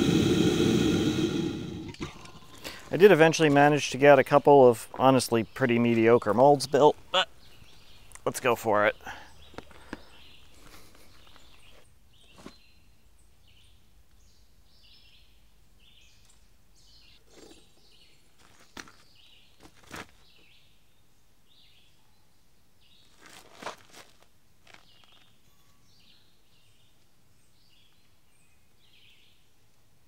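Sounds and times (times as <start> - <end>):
birds chirping: 0.0 - 19.6.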